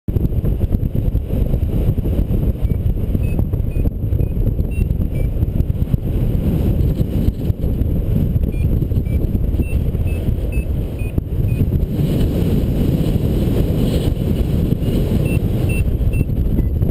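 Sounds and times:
airflow rushing over microphone: 0.1s - 16.9s
variometer high beeps: 2.6s - 5.4s, 8.4s - 11.7s, 14.8s - 16.8s.

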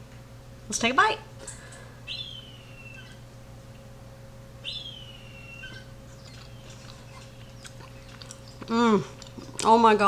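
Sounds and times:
baby birds high thin calls: 2.1s - 3.2s, 4.6s - 8.6s.

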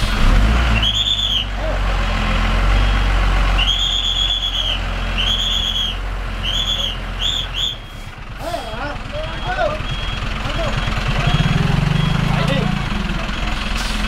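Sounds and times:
bus engine at low revs: 0.0s - 14.0s.

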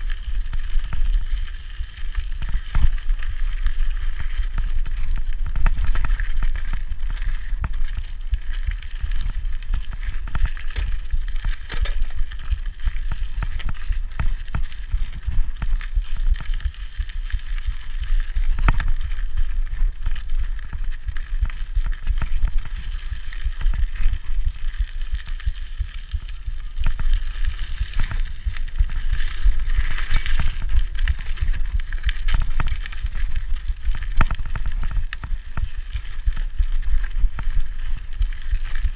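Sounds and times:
bike tyres crunching over gravel: 0.0s - 38.9s
constant low rumble: 0.0s - 38.9s
bike knocks and rattles: 9.1s - 15.7s, 26.8s - 36.1s.

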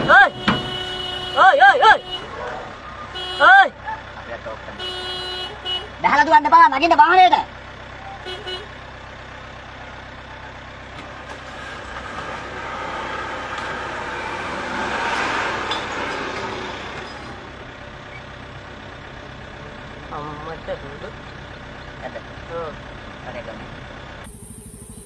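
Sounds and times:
vehicle engine idling: 0.0s - 25.0s.

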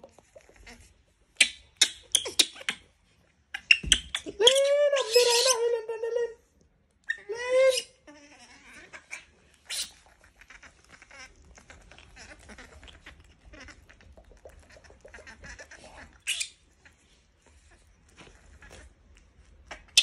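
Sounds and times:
baby monkey squeaking: 1.4s - 2.9s, 3.6s - 5.6s, 7.1s - 11.3s
baby monkey squealing: 1.4s - 2.9s, 3.6s - 5.8s, 7.1s - 13.9s, 14.6s - 16.6s.

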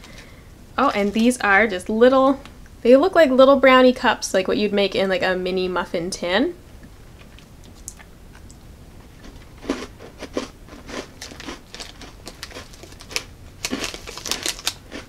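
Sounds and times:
person chewing crunchy cookies: 7.2s - 15.0s.

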